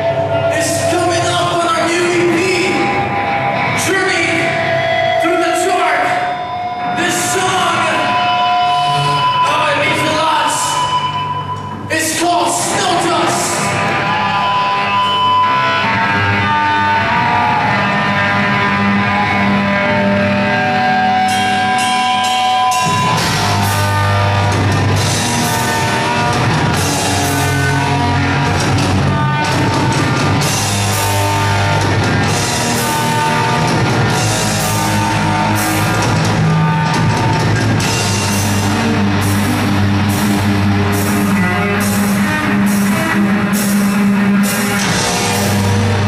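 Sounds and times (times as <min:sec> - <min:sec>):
heavy metal band playing live: 0:00.0 - 0:46.0.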